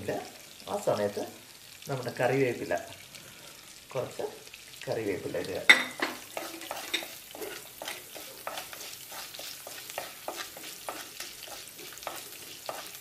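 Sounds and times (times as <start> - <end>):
curry leaves sizzling in hot oil: 0.0 - 13.0
wooden spatula scraping a clay pot: 6.1 - 13.0.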